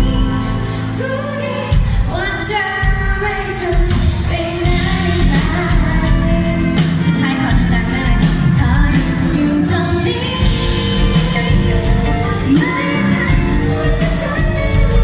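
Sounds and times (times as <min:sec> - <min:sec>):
woman singing pop ballad: 0:00.0 - 0:15.0
electric bass: 0:04.7 - 0:15.0.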